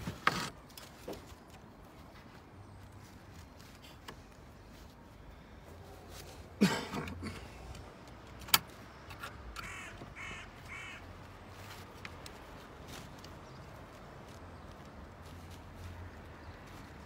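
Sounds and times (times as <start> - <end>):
crow cawing: 9.6 - 11.2.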